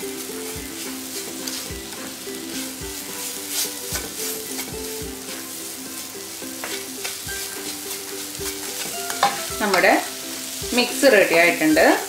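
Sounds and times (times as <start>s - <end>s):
light sizzle: 0.0s - 12.0s
soft background music: 0.0s - 12.0s
spatula scraping frying pan: 0.0s - 12.0s.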